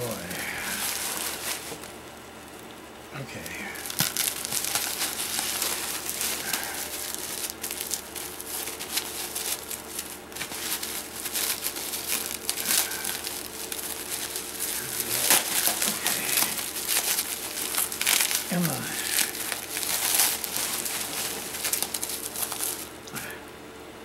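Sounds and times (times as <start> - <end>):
bubble wrap crinkling: 0.0 - 23.2.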